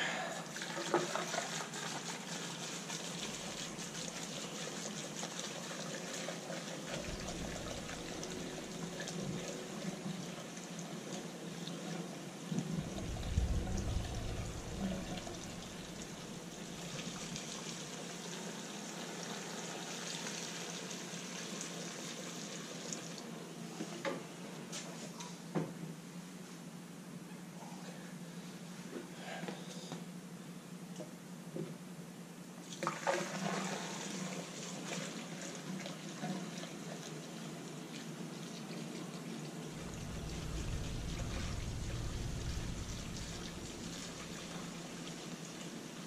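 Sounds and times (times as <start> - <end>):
liquid pouring through a funnel: 0.5 - 10.9, 12.6 - 20.4, 39.7 - 46.0
low bumps: 7.0 - 9.5, 12.6 - 17.2, 39.8 - 45.1.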